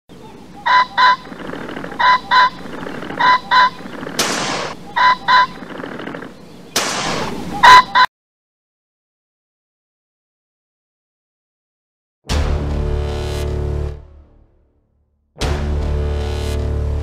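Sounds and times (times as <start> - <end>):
pheasant crowing: 0.1 - 8.1
shotgun blasts: 4.2 - 4.8, 6.8 - 7.5.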